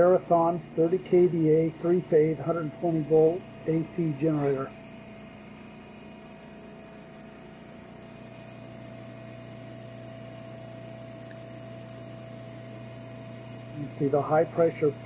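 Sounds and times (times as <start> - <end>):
generator mechanical hum: 0.0 - 15.0.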